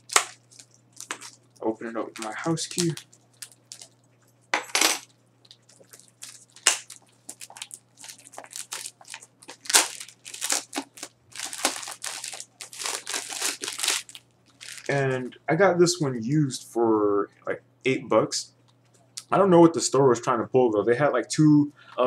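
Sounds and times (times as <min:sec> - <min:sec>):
plastic packaging crinkling and tearing: 0:00.0 - 0:04.1, 0:04.8 - 0:15.2.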